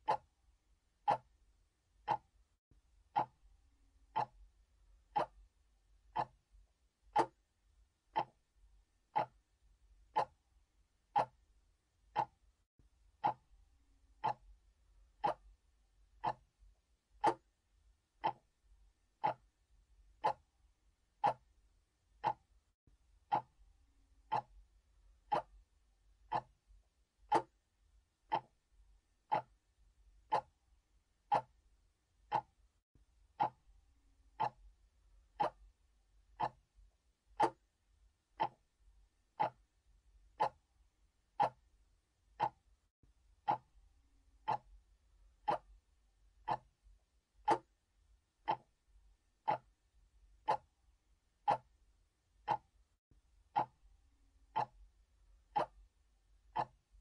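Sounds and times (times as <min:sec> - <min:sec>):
mechanical clock ticking: 0:00.0 - 0:00.3, 0:01.0 - 0:01.3, 0:02.0 - 0:02.4, 0:03.1 - 0:03.4, 0:04.1 - 0:04.5, 0:05.1 - 0:05.4, 0:06.1 - 0:06.4, 0:07.1 - 0:07.4, 0:08.1 - 0:08.5, 0:09.1 - 0:09.5, 0:10.1 - 0:10.4, 0:11.1 - 0:11.5, 0:12.1 - 0:12.4, 0:13.2 - 0:13.5, 0:14.2 - 0:14.6, 0:15.2 - 0:15.6, 0:16.2 - 0:16.5, 0:17.2 - 0:17.6, 0:18.2 - 0:18.6, 0:19.2 - 0:19.5, 0:20.1 - 0:20.5, 0:21.2 - 0:21.5, 0:22.2 - 0:22.6, 0:23.3 - 0:23.6, 0:24.2 - 0:24.6, 0:25.3 - 0:25.6, 0:26.3 - 0:26.6, 0:27.3 - 0:27.6, 0:28.3 - 0:28.6, 0:29.3 - 0:29.6, 0:30.2 - 0:30.6, 0:31.3 - 0:31.6, 0:32.2 - 0:32.6, 0:33.4 - 0:33.7, 0:34.3 - 0:34.7, 0:35.4 - 0:35.8, 0:36.4 - 0:36.7, 0:37.4 - 0:37.7, 0:38.4 - 0:38.7, 0:39.4 - 0:39.7, 0:40.3 - 0:40.7, 0:41.4 - 0:41.7, 0:42.3 - 0:42.7, 0:43.4 - 0:43.8, 0:44.4 - 0:44.8, 0:45.4 - 0:45.8, 0:46.4 - 0:46.8, 0:47.4 - 0:47.7, 0:48.4 - 0:48.8, 0:49.4 - 0:49.8, 0:50.4 - 0:50.7, 0:51.4 - 0:51.8, 0:52.4 - 0:52.8, 0:53.5 - 0:53.8, 0:54.5 - 0:54.8, 0:55.5 - 0:55.9, 0:56.5 - 0:56.9.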